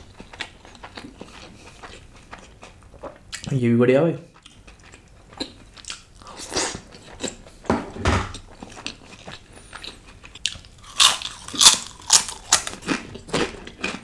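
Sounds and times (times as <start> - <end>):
person chewing food: 0.0 - 3.6, 4.3 - 7.7, 8.3 - 14.0
crisp crunching: 10.8 - 14.0.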